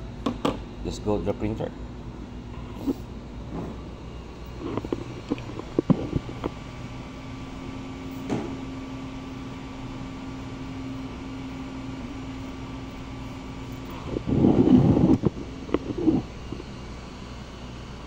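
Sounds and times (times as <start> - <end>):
cooling fans humming: 0.0 - 18.0.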